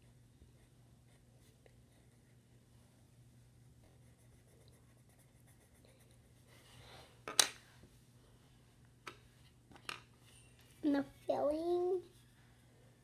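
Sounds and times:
pencil scratching on paper: 3.9 - 6.4.

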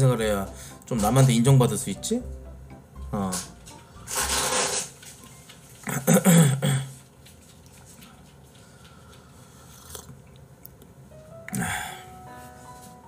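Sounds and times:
man sipping from a mug: 9.6 - 10.2.

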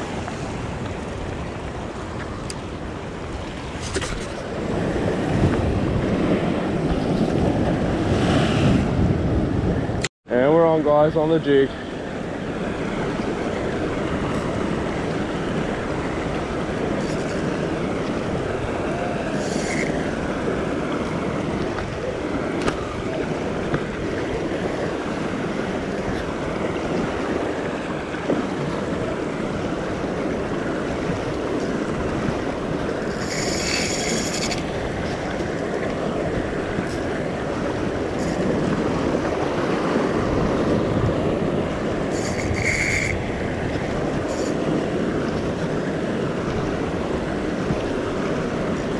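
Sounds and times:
ocean swell washing over rock: 0.0 - 10.0, 11.3 - 48.9
short high-pitched rasps: 33.1 - 34.6, 42.1 - 43.2.

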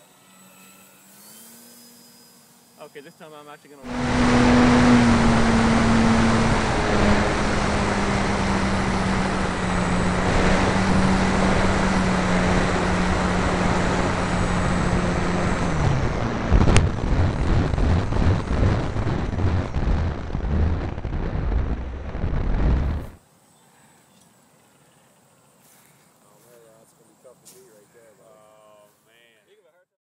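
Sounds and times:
electric model plane motor droning: 0.0 - 23.2
wind rush on camera: 3.9 - 23.2.

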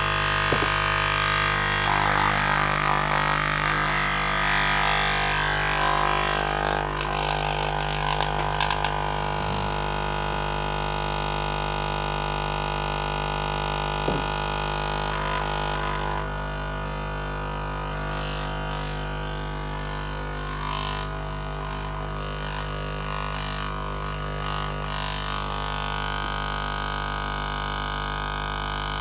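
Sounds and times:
low speaker drone with overtones: 0.0 - 15.7.

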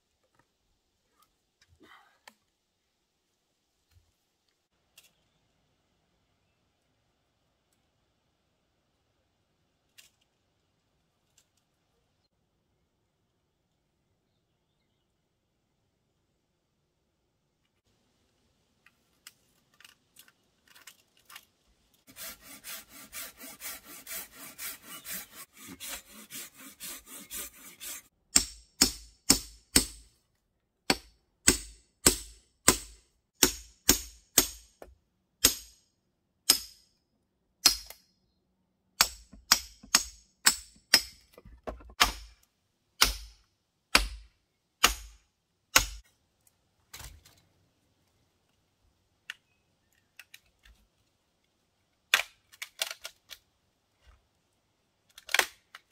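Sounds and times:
handsaw cutting wood: 22.1 - 28.1.

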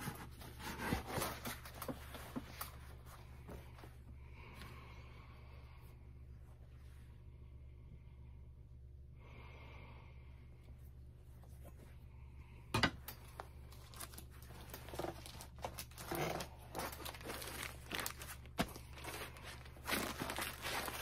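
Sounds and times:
vinyl records in plastic rustling: 0.0 - 4.0, 13.0 - 21.0.

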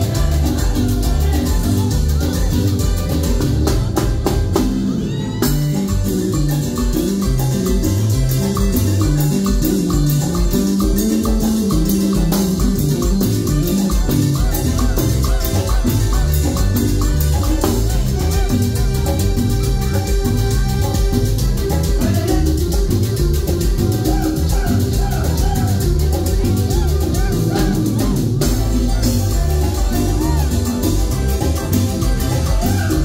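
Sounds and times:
congas: 0.0 - 33.0
drum kit: 0.0 - 33.0
electric guitar: 0.0 - 33.0.

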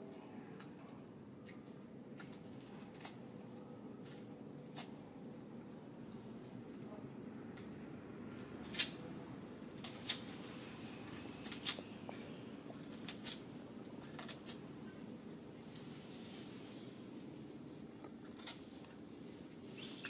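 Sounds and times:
low background hum: 0.0 - 20.0
monkey crunching sugarcane: 11.0 - 11.9, 12.6 - 14.7, 18.0 - 19.6.

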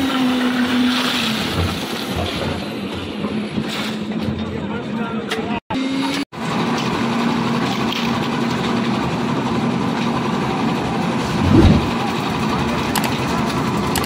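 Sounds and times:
concrete mixer engine droning: 5.7 - 14.0.

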